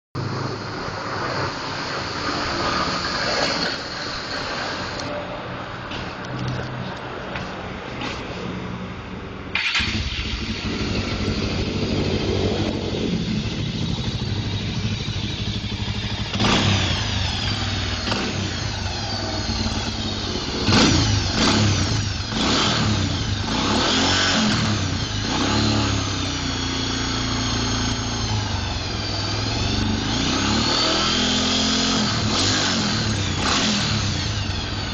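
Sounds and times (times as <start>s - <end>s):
motorcycle engine idling and revving: 0.2s - 34.9s
electric starter cranking: 9.6s - 11.3s, 15.1s - 34.9s.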